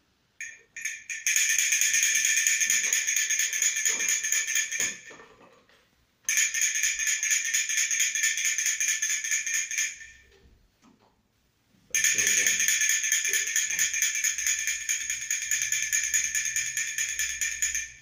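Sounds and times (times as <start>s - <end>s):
rattle toy jingling: 0.4s - 5.0s, 12.0s - 18.0s.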